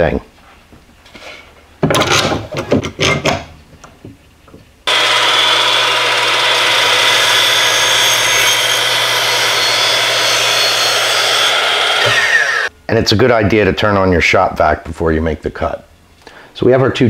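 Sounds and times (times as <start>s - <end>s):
knocks and clatter of board: 1.8s - 4.2s
miter saw cutting wood: 4.9s - 12.7s.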